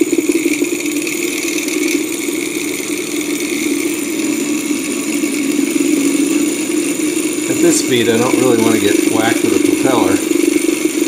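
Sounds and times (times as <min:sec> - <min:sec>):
small engine propeller whirring: 0:00.0 - 0:11.0.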